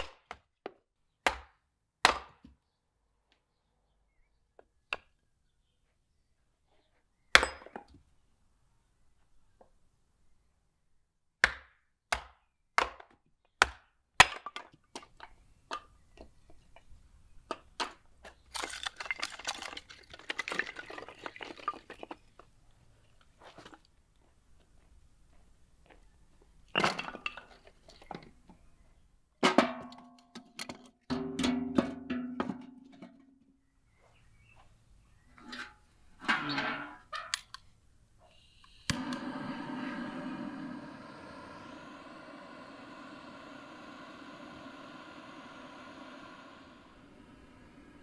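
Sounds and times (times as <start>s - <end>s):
split wood pieces clattering: 17.8s - 22.3s.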